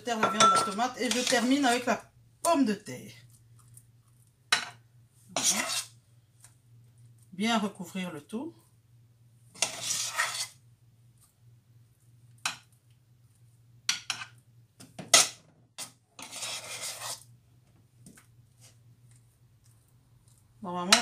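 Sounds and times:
metal spoon clinking: 0.2 - 1.3
spoon scraping dish: 0.2 - 1.9, 5.3 - 6.0, 9.6 - 10.6, 15.2 - 17.3.

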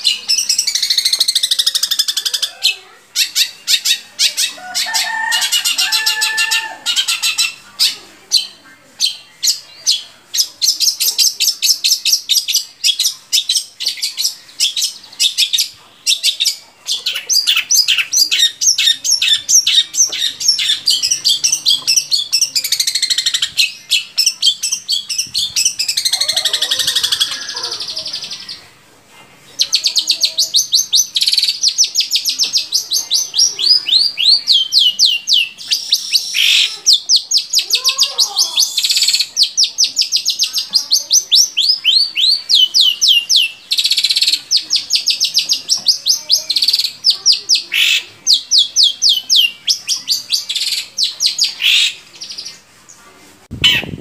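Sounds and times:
shrike singing chirps and whistles: 29.6 - 37.8, 38.4 - 52.0.

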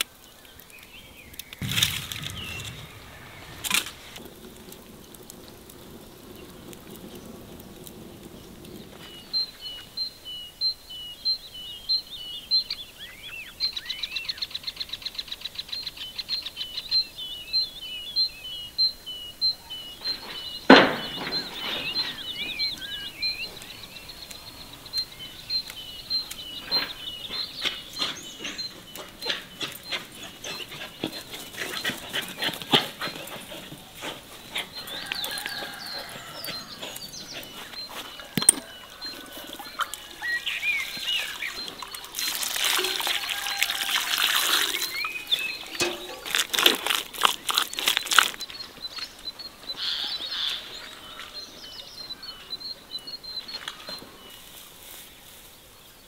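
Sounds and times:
songbirds singing: 0.0 - 56.0
sharp knocks: 1.6 - 4.2.

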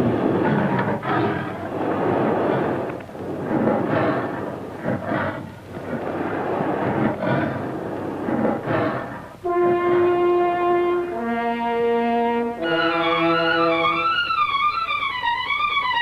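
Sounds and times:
rumbling roaring sound effects: 0.0 - 9.4.

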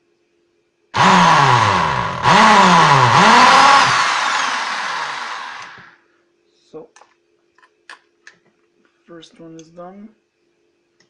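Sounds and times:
electric drill boring metal: 1.0 - 6.0.

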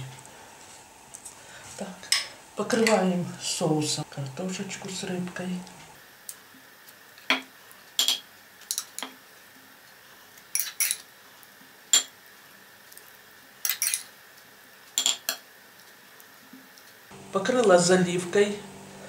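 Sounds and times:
metal spoon clinking on dishes: 8.0 - 9.1, 10.5 - 11.0, 11.9 - 12.1, 13.6 - 14.1, 15.0 - 15.4.

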